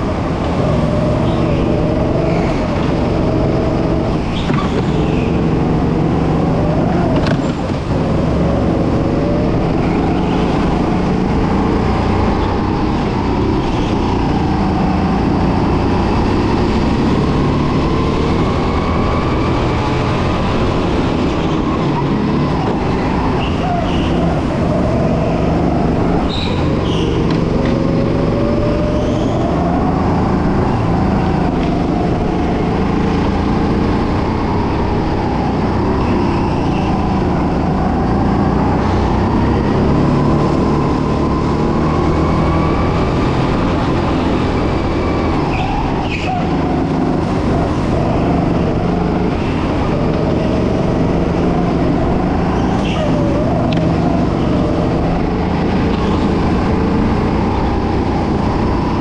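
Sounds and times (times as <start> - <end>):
racing kart motor: 0.0 - 59.0.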